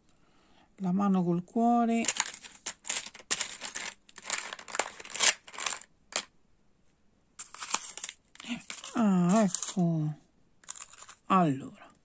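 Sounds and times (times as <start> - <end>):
metal charms and beads rattling: 2.0 - 6.3, 7.4 - 9.8, 10.6 - 11.3.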